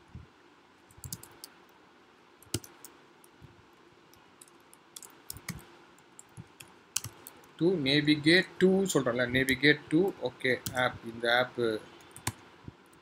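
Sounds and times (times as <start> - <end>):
computer keyboard clicks: 1.0 - 1.5, 2.4 - 3.0, 6.2 - 7.4.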